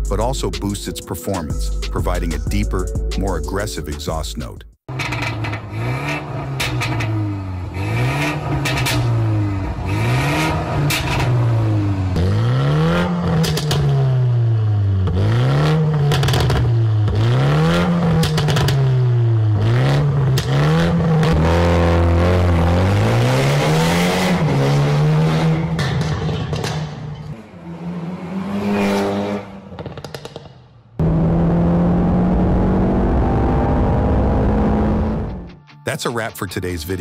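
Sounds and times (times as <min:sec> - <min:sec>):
exhaust cracks: 0:04.9 - 0:27.5, 0:29.5 - 0:35.6
car engine revving: 0:04.9 - 0:35.6.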